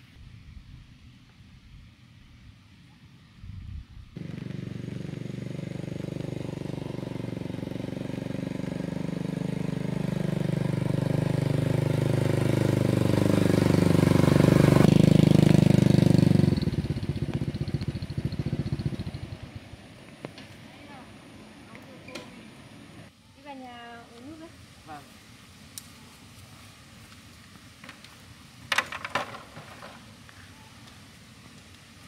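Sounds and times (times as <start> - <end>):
motorbike engine running: 4.2 - 19.7.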